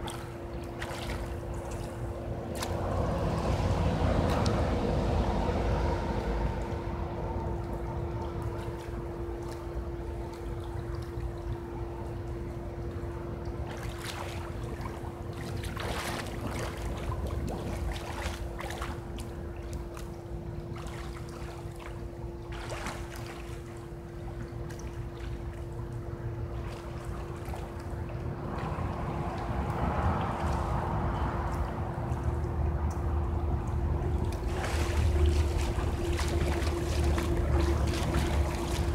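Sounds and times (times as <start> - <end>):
steady hum: 0.0 - 38.9
swimming strokes splashing: 0.0 - 38.9
low rumble: 1.5 - 13.6, 27.8 - 38.9.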